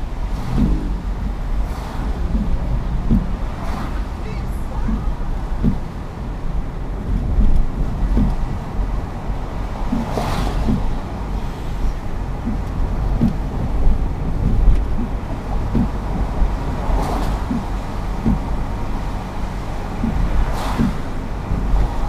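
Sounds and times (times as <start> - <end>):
passing vehicle hiss: 0.0 - 6.2, 8.4 - 12.5, 16.0 - 22.0
road and tyre noise: 0.0 - 22.0.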